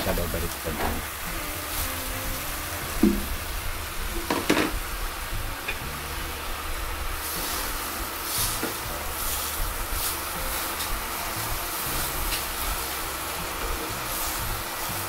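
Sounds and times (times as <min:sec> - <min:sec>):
low sizzle: 0:00.0 - 0:15.0
spatula stirring leaves in pot: 0:00.6 - 0:15.0
sharp knocks: 0:02.9 - 0:03.4, 0:04.1 - 0:04.8.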